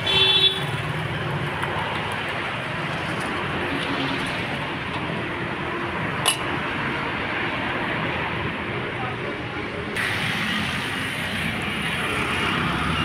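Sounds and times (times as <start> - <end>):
light street traffic: 0.0 - 13.0
kebabs sizzling in hot oil: 10.0 - 12.9.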